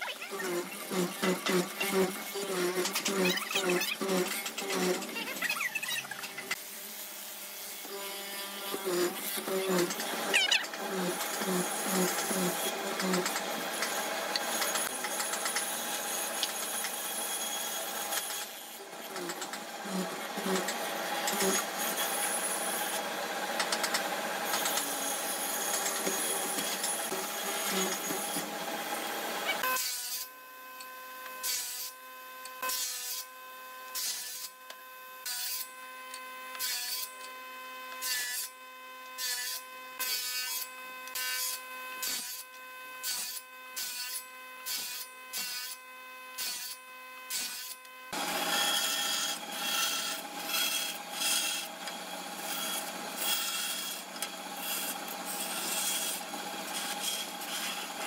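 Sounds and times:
band saw rasping through wood: 0:00.0 - 0:06.6, 0:07.7 - 0:30.3, 0:46.4 - 0:58.0
mortising machine boring wood: 0:00.0 - 0:06.6, 0:07.8 - 0:29.9, 0:48.1 - 0:58.0
short saw cuts: 0:00.1 - 0:06.6, 0:08.6 - 0:30.3, 0:46.4 - 0:58.0
table saw whine: 0:07.2 - 0:30.3, 0:47.2 - 0:58.0.

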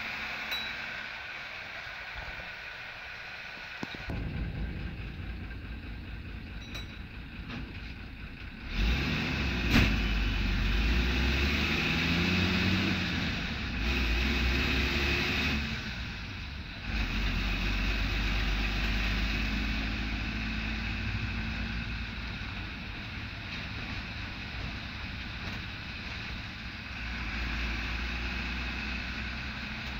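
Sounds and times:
diesel bus engine under load: 0:00.0 - 0:29.9
sharp knock: 0:03.9 - 0:07.9.

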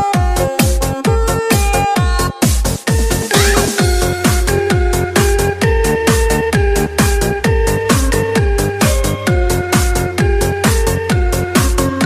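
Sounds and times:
techno dance music: 0:00.0 - 0:12.0.

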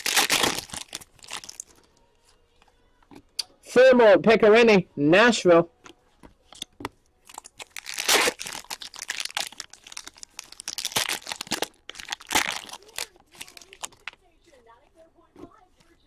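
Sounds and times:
foil wrapper crinkling and tearing: 0:00.0 - 0:01.8, 0:07.2 - 0:14.2.

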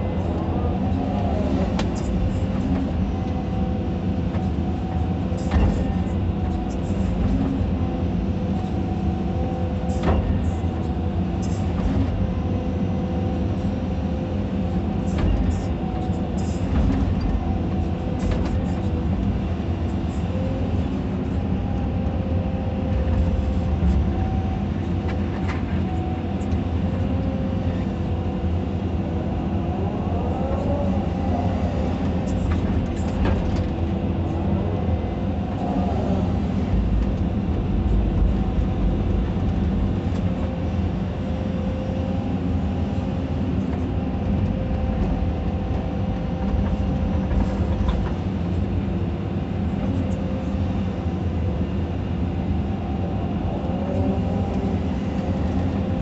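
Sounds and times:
excavator diesel engine under load: 0:00.0 - 0:56.0.

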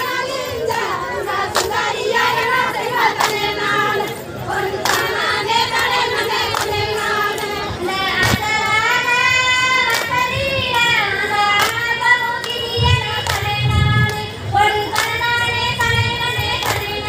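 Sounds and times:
women singing folk song: 0:00.0 - 0:17.0
hand claps: 0:01.5 - 0:02.3, 0:03.1 - 0:03.7, 0:04.6 - 0:07.5, 0:08.2 - 0:08.6, 0:09.8 - 0:14.3, 0:14.9 - 0:17.0.

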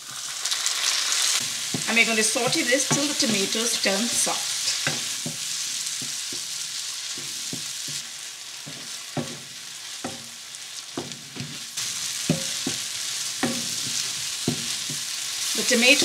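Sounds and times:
vegetables sizzling in oil: 0:00.0 - 0:16.0
wooden spatula scraping pan: 0:01.4 - 0:06.5.

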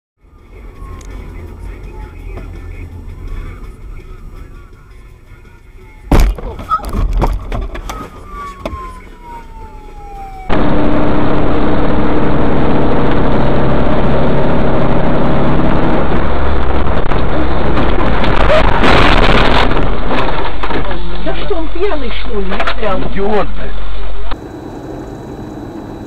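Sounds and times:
engine and road noise: 0:00.2 - 0:26.0
short thump: 0:06.1 - 0:08.9
faint engine tones: 0:24.4 - 0:26.0.

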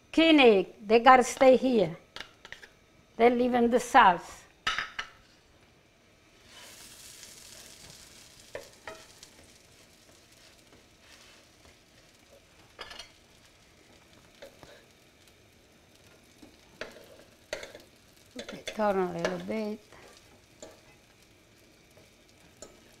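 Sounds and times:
garlic sizzling in oil: 0:06.2 - 0:23.0.

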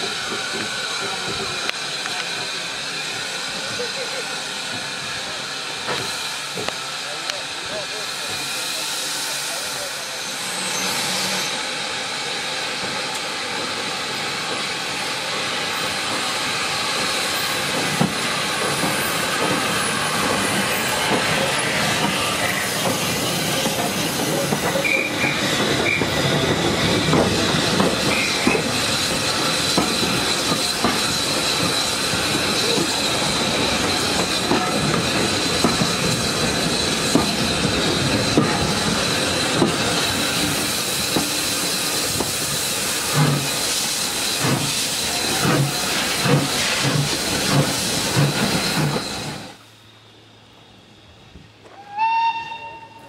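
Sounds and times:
steam hissing: 0:00.0 - 0:50.0
high wheel squeal: 0:07.9 - 0:12.4, 0:16.5 - 0:53.0.

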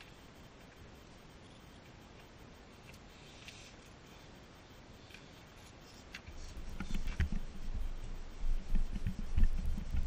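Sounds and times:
faint ticks: 0:00.0 - 0:04.0
low thumps and rubbing: 0:06.3 - 0:10.0.

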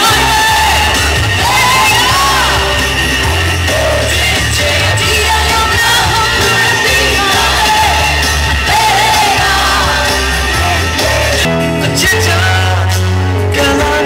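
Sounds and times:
audience shouting: 0:00.0 - 0:11.5
woman singing with band: 0:00.0 - 0:12.8.

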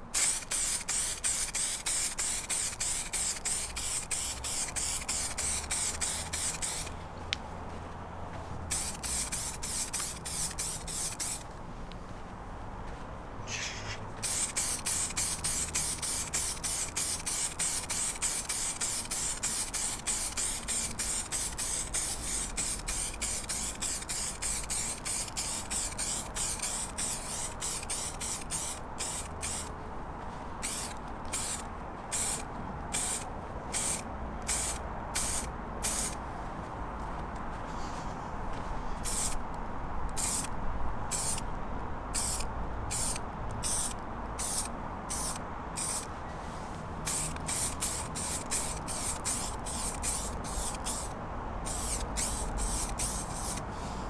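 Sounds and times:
aerosol spray can hissing: 0:00.1 - 0:06.9, 0:08.7 - 0:11.4, 0:13.5 - 0:29.7, 0:30.6 - 0:32.4, 0:33.0 - 0:36.2, 0:39.0 - 0:39.4, 0:40.2 - 0:40.5, 0:41.1 - 0:41.4, 0:42.2 - 0:46.1, 0:47.1 - 0:51.1, 0:51.7 - 0:53.6.

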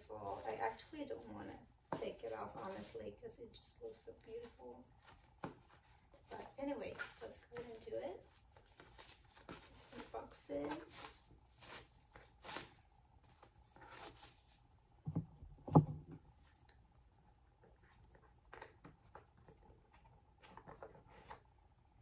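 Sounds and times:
ribbon rustling: 0:00.0 - 0:14.6.

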